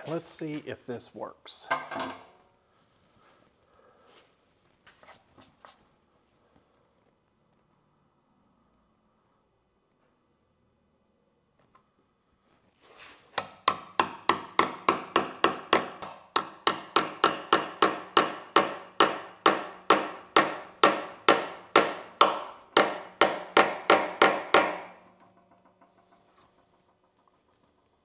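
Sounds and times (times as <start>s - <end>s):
hammer tapping a chisel: 13.4s - 27.5s.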